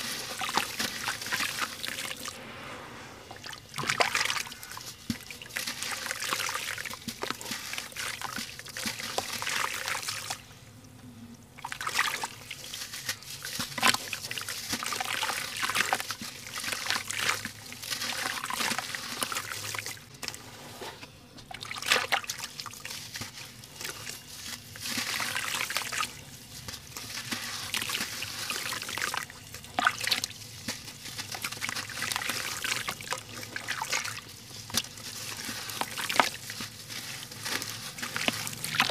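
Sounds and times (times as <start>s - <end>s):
cement lumps crunching by hand: 21.7s - 38.9s.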